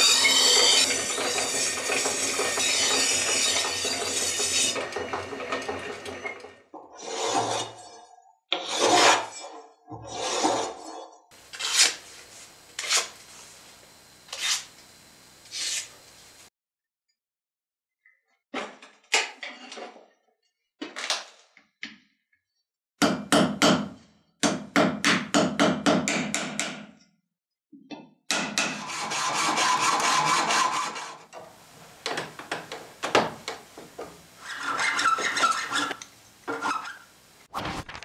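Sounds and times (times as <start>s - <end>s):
hand saw cutting: 0.0s - 5.0s, 7.0s - 7.8s, 8.6s - 9.4s, 11.4s - 12.0s, 12.8s - 13.2s, 14.3s - 14.8s, 15.5s - 16.0s, 28.6s - 31.4s, 34.4s - 36.9s.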